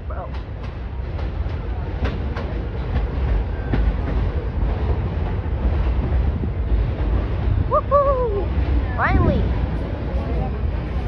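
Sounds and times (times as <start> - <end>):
subway train rumble: 0.0 - 11.0.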